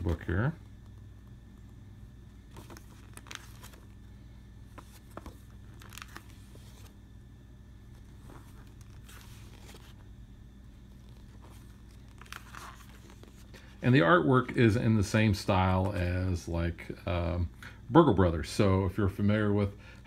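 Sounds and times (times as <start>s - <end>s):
faint low hum: 0.0s - 20.0s
paper pages turning: 2.4s - 4.1s, 4.7s - 7.0s, 7.8s - 10.1s, 10.7s - 13.8s.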